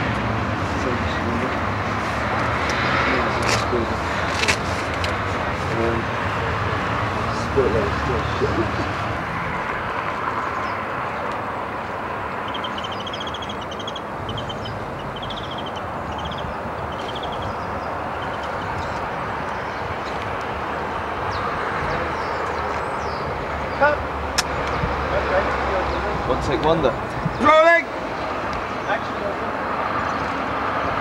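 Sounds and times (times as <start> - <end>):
outdoor rumble and hiss: 0.0 - 31.0
bird chirping trills: 12.2 - 25.1.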